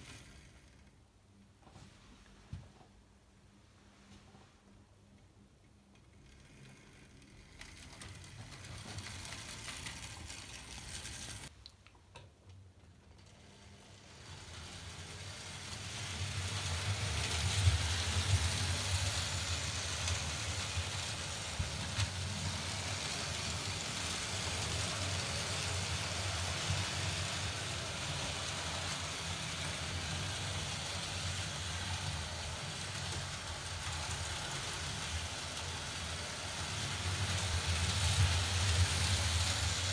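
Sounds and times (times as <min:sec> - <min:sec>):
model train motor hum: 0:06.1 - 0:11.5, 0:13.1 - 0:39.9
wheel and rail rattle: 0:06.2 - 0:11.5, 0:14.2 - 0:39.9.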